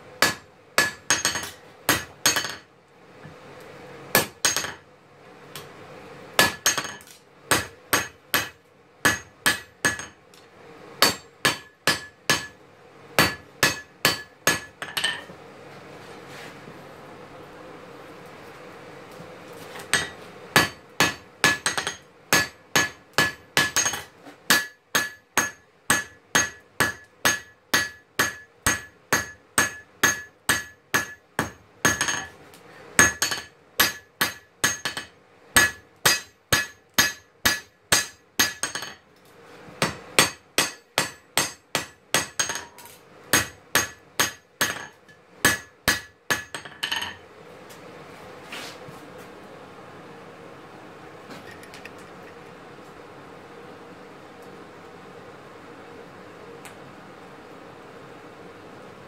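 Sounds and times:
hammer striking metal on anvil: 0.2s - 2.6s, 4.2s - 4.8s, 6.4s - 10.2s, 11.0s - 12.6s, 13.2s - 15.3s, 19.9s - 32.3s, 33.0s - 39.0s, 39.8s - 47.2s.

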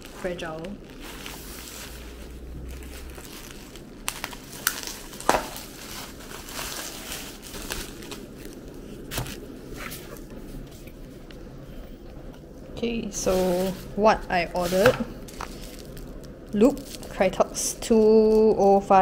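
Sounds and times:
plastic packaging crinkling: 0.0s - 11.6s, 13.0s - 19.0s.

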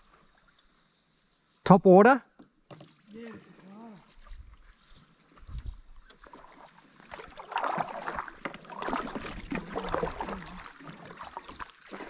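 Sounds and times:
water splashing around kayak: 2.5s - 12.0s.

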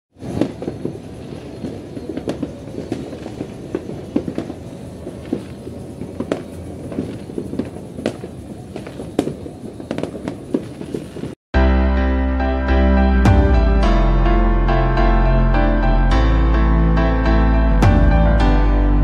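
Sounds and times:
firecrackers crackling: 0.2s - 11.4s
fireworks bangs: 0.2s - 11.4s.

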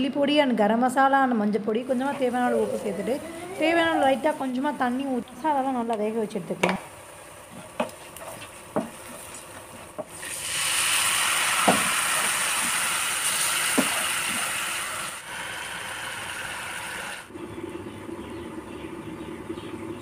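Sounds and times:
loud sizzle of oil: 7.0s - 17.3s.

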